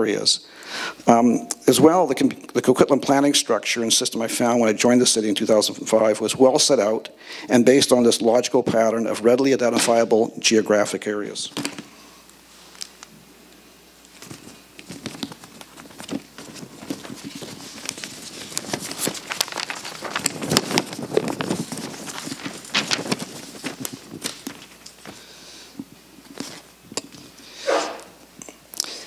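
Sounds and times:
paper rustling: 0:14.0 - 0:25.4, 0:26.2 - 0:28.1.

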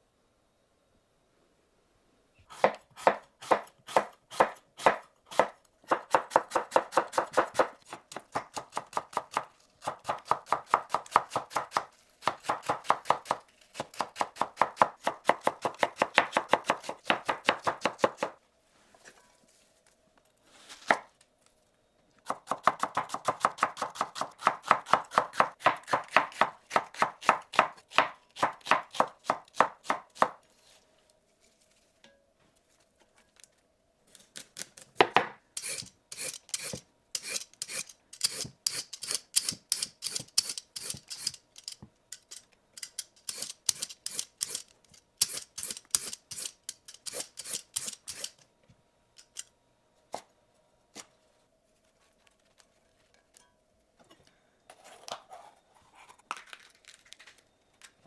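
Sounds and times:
knife chopping on cutting board: 0:02.6 - 0:18.3.

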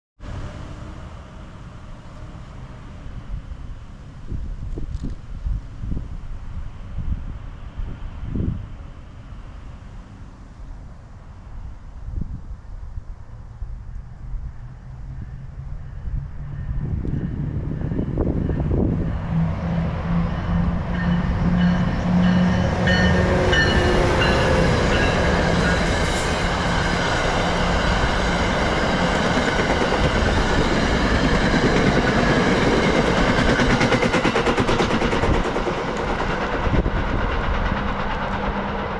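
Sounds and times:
locomotive engine tone: 0:14.6 - 0:38.9
train wheels clacking on rails: 0:16.4 - 0:38.9.

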